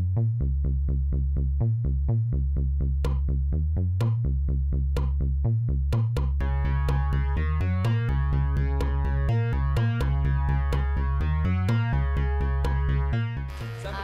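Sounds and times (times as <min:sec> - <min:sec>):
electronic music with drum-machine beat: 0:06.0 - 0:14.0.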